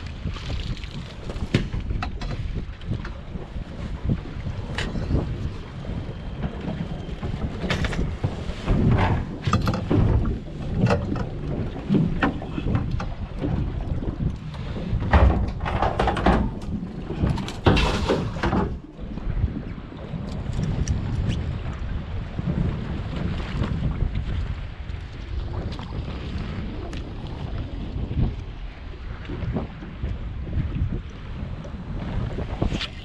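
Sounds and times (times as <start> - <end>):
water splashes: 0.0 - 33.0
wind buffeting microphone: 0.0 - 33.0.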